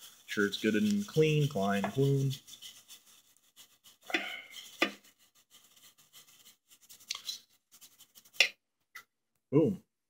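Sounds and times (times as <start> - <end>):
wire brush scrubbing metal: 0.0 - 8.5
brush clicking on metal: 0.6 - 8.6.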